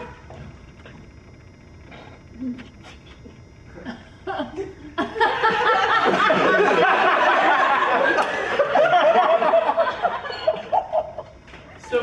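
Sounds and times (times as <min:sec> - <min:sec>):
audience laughing: 0:04.3 - 0:11.2.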